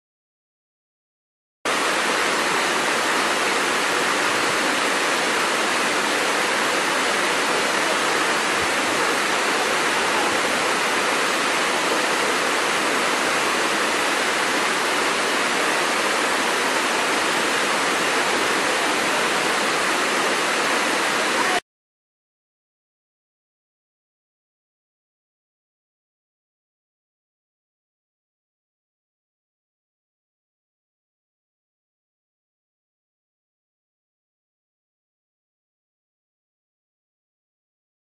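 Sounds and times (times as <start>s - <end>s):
waterfall rushing: 1.7s - 21.6s.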